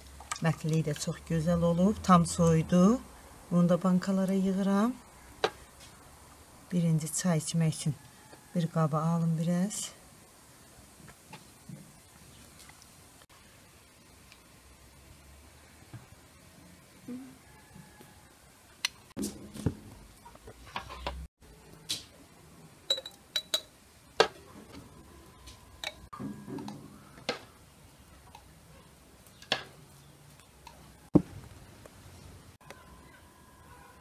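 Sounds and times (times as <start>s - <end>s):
metal spoon clinking against glass: 22.9s - 23.7s.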